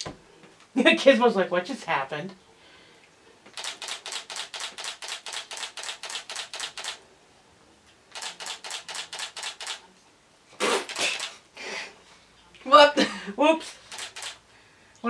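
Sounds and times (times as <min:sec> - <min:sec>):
camera shutter burst: 0:03.5 - 0:07.0, 0:08.1 - 0:09.8, 0:10.6 - 0:11.4, 0:13.9 - 0:14.4.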